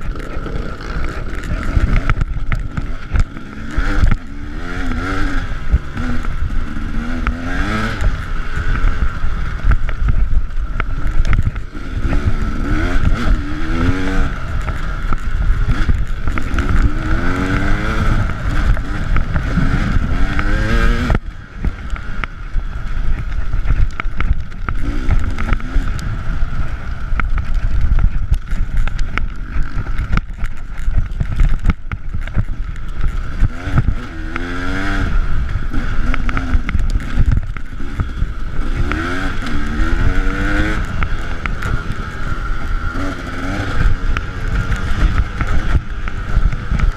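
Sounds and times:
motorcycle engine revving: 0.0 - 46.9
wind noise on camera: 0.0 - 46.9.

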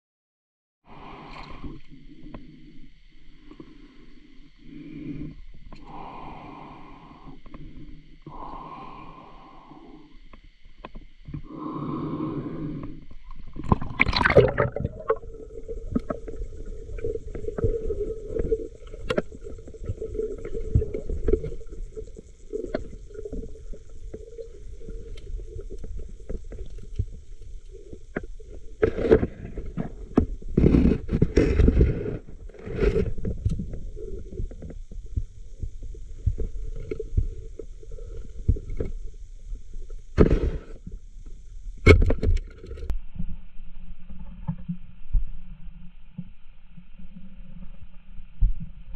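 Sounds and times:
low underwater rumble: 13.1 - 41.9
underwater bubbling bursts: 13.5 - 29.9.

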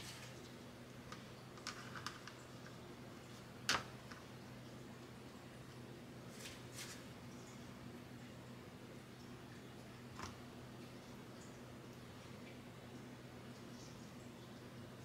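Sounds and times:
soft brushing sounds: 6.3 - 7.2.

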